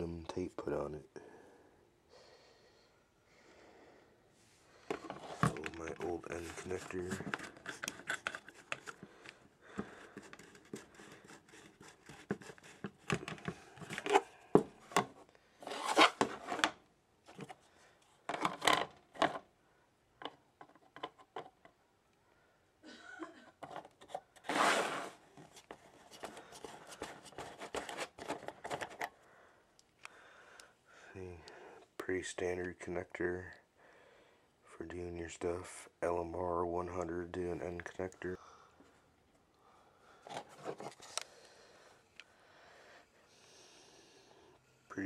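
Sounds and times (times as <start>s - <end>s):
plastic handling clicks and rubs: 4.8s - 19.5s, 20.2s - 21.8s, 23.6s - 24.6s, 25.3s - 29.2s, 40.2s - 41.3s.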